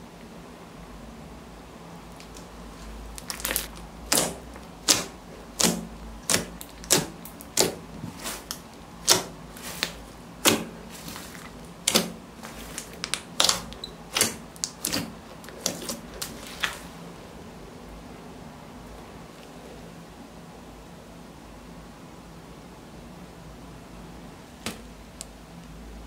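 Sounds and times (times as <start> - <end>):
slime clicking and popping: 3.2 - 16.8.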